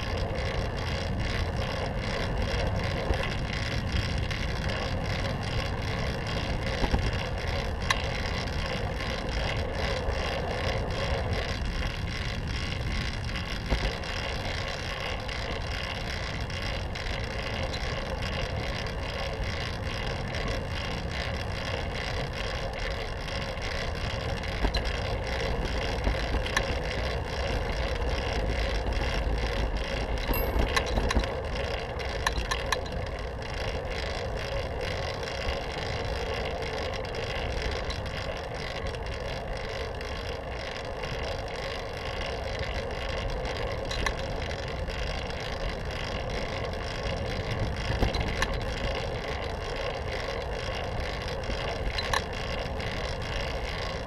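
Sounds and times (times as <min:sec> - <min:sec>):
bicycle tyre rumble on pavement: 0:00.0 - 0:54.0
bike rattles and ticks: 0:00.0 - 0:54.0.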